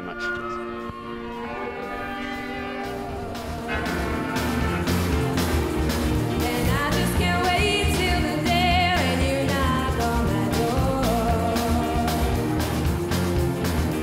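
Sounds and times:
blues band playing: 0.0s - 14.0s
woman singing: 6.4s - 12.5s.

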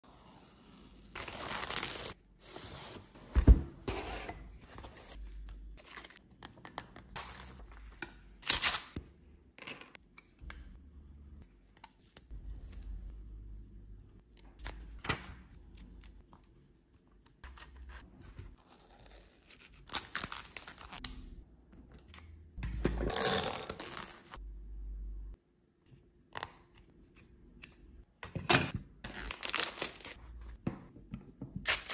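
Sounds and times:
packaging tearing and crinkling: 29.1s - 30.2s.

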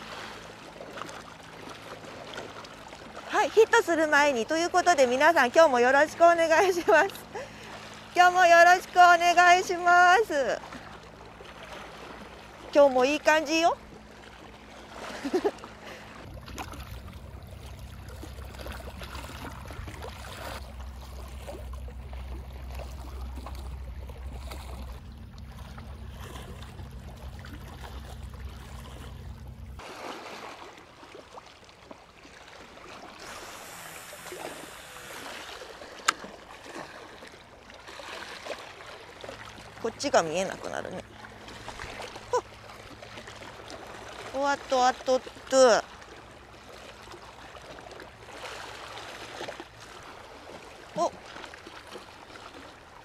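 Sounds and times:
low steady rumble: 0.0s - 29.9s.

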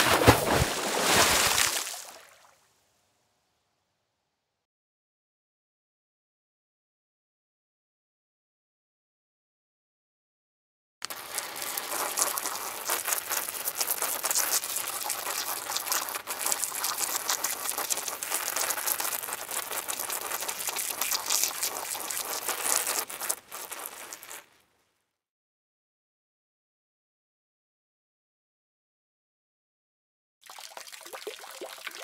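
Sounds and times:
dense crackle of tiny clicks: 11.0s - 24.5s.

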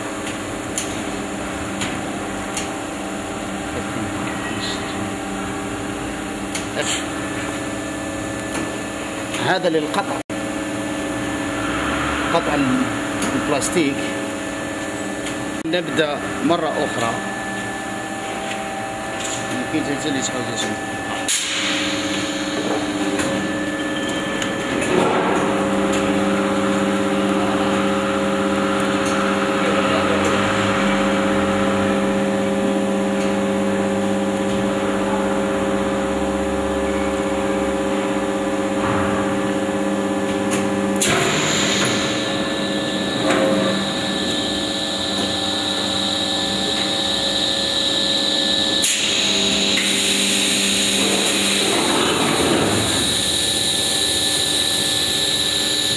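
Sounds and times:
machine motors humming: 0.0s - 55.9s.

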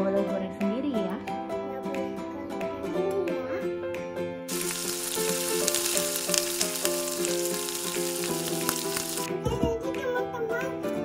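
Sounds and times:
donuts sizzling in hot oil: 4.5s - 9.3s.

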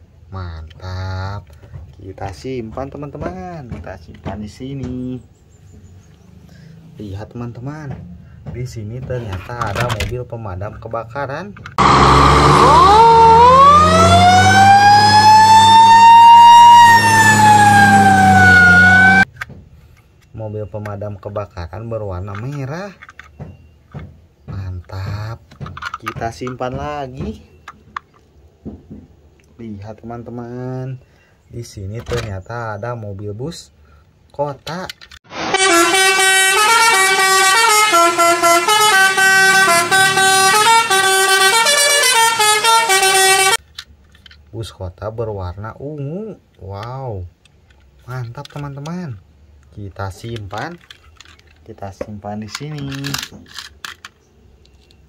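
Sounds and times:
multi-tone bus horn tune: 11.8s - 19.2s, 35.3s - 43.6s
fire engine siren wailing: 11.8s - 19.3s, 35.3s - 43.6s.

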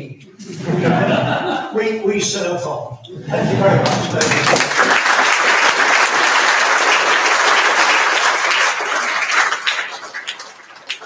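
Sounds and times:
audience applauding: 3.6s - 11.0s.

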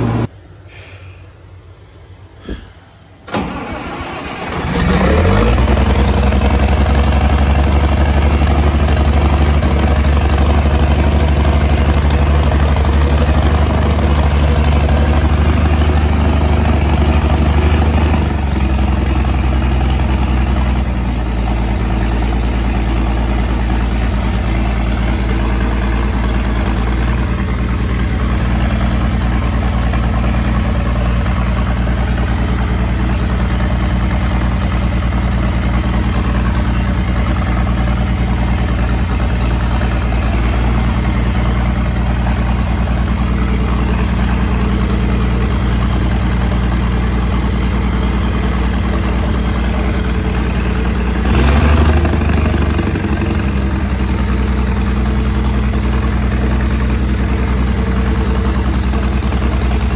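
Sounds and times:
tractor engine idling: 0.0s - 59.9s.

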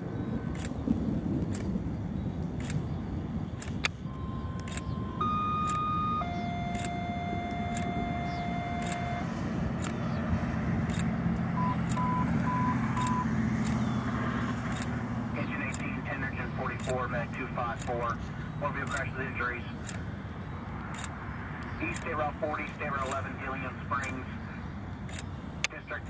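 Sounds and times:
propeller airplane drone: 0.0s - 26.0s
radio scanner alert tones: 3.6s - 13.9s, 14.7s - 26.0s
short beeps: 4.0s - 10.2s, 11.6s - 13.3s.

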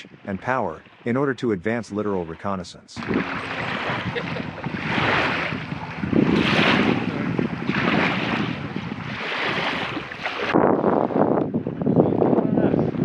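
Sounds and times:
water washing and splashing: 2.1s - 10.6s
wind on microphone: 3.0s - 13.0s.

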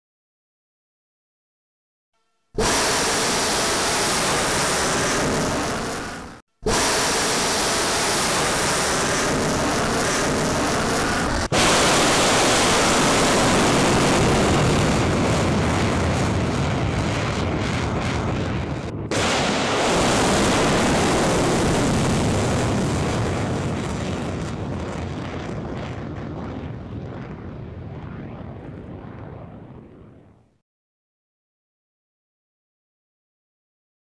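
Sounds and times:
rocket motor roaring: 2.6s - 30.3s.

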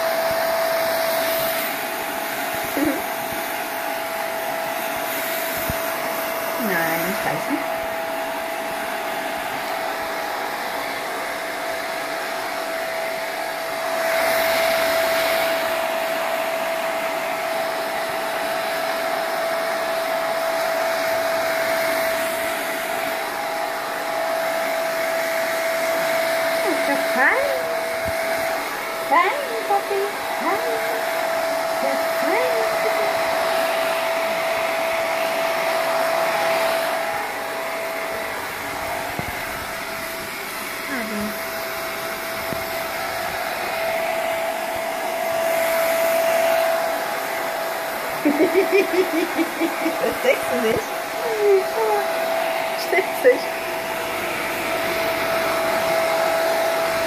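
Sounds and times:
hair dryer blowing: 0.0s - 57.0s.

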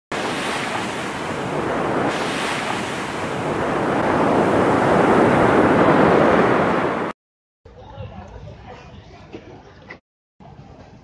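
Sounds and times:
waves washing onto sandy beach: 0.1s - 7.1s
wind buffeting microphone: 0.1s - 7.1s.

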